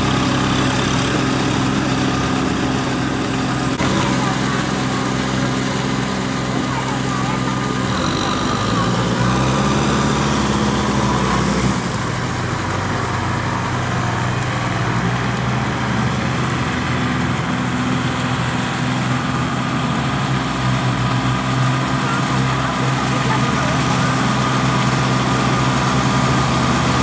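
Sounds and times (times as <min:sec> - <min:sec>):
tractor engine running: 0:00.0 - 0:27.0.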